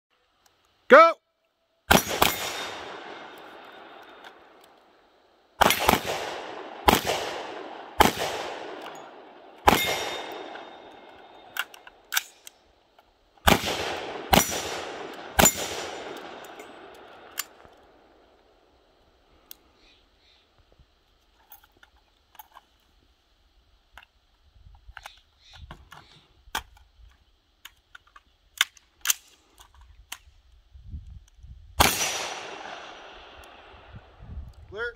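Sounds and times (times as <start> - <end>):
rifle shots: 1.9 - 4.4, 5.6 - 12.4, 13.4 - 17.6, 31.8 - 33.7
rifle handling clicks and rattles: 8.7 - 13.2, 15.1 - 17.9, 21.0 - 23.1, 23.9 - 31.5.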